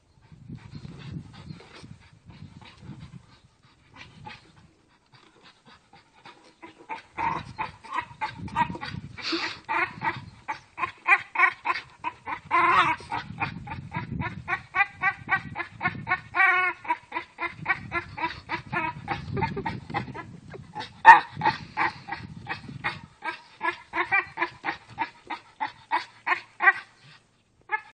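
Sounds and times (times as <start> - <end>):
dog breathing hard: 0.2 - 6.6
dog grunting whines: 6.5 - 27.1
dog crying: 6.6 - 27.0, 27.7 - 28.0.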